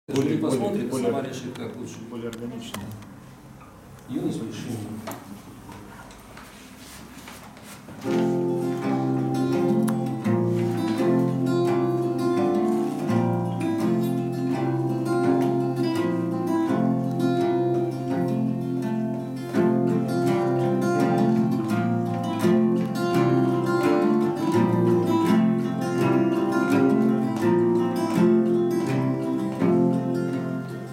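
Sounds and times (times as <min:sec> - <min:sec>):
acoustic guitar duet: 0:07.9 - 0:30.9.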